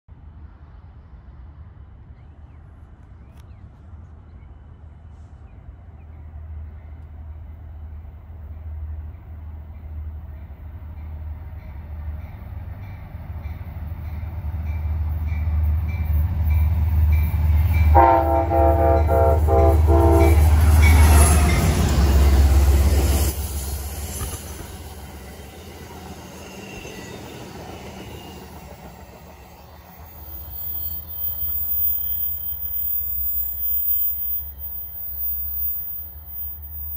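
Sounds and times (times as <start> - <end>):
train wheel noise: 7.9 - 36.9
multi-note train horn: 17.9 - 21.8.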